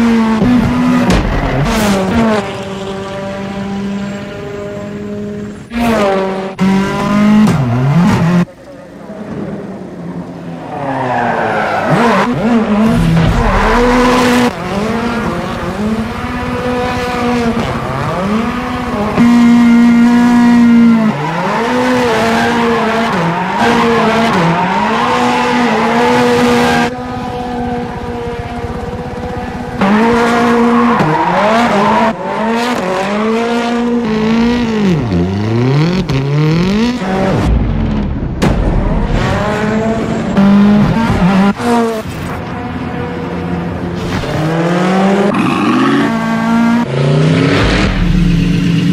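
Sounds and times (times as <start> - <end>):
race car engine revving: 11.0 - 42.4, 43.7 - 48.9.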